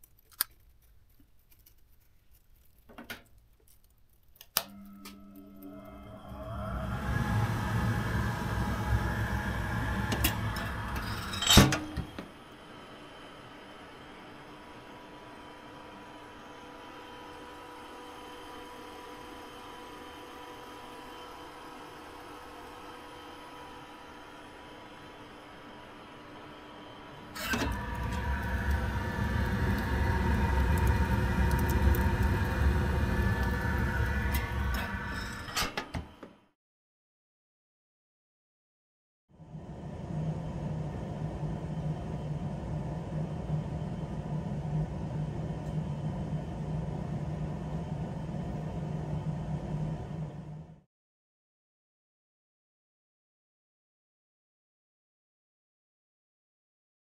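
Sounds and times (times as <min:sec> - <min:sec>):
low muffled hum: 0:03.8 - 0:35.6, 0:39.4 - 0:50.8
steady whine: 0:04.6 - 0:35.6, 0:39.4 - 0:50.8
boiler fan and fire rumble: 0:05.6 - 0:35.6, 0:39.4 - 0:50.8
steel door slamming shut: 0:10.1 - 0:12.2.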